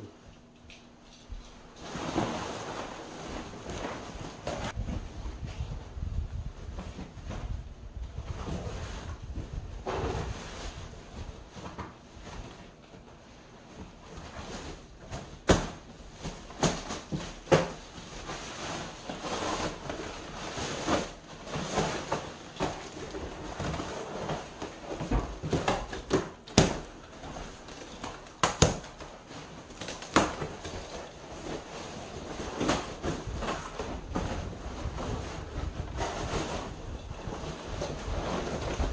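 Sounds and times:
plastic wrapping rustling: 1.0s - 7.6s, 13.8s - 38.9s
knocks and thumps of furniture: 14.0s - 38.9s.

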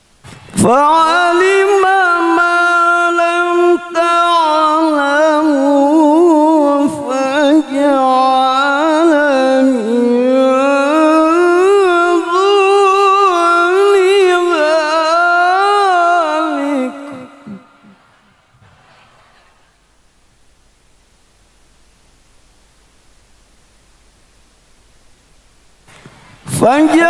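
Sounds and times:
man chanting into a microphone: 0.5s - 18.0s, 26.5s - 27.0s.

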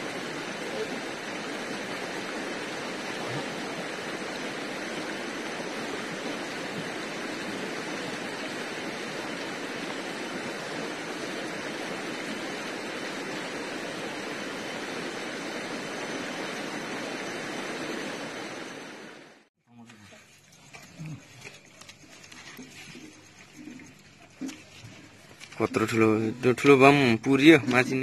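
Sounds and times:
river water rushing over stones: 0.0s - 19.4s.

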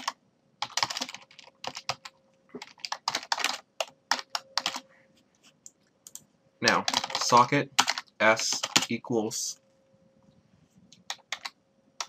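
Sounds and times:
typing on computer keyboard: 0.0s - 4.8s, 6.0s - 9.0s, 11.0s - 11.6s.

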